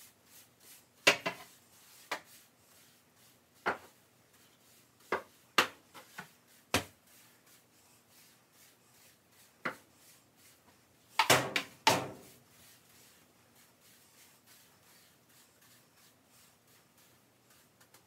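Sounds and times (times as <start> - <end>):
kitchen knocks and clatters: 1.1 - 1.5, 3.6 - 4.0, 11.2 - 12.3.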